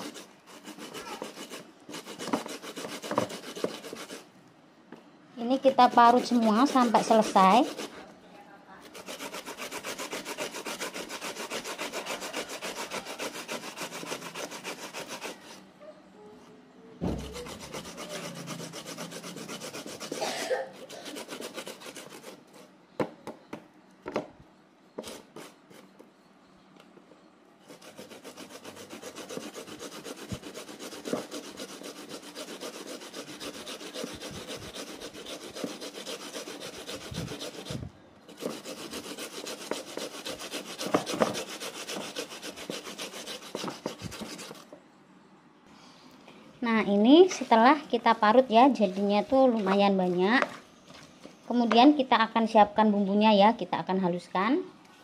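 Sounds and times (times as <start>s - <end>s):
grating scraping strokes: 0.0s - 4.2s, 5.6s - 8.1s, 8.8s - 15.6s, 17.0s - 22.7s, 27.7s - 44.7s
sharp knocks: 17.0s - 17.6s.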